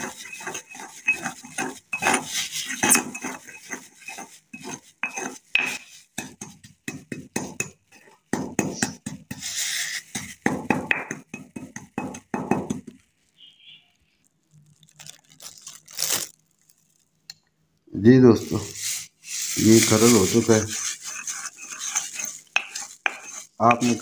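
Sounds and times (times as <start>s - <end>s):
pestle scraping in mortar: 0.0s - 13.0s, 18.4s - 24.0s.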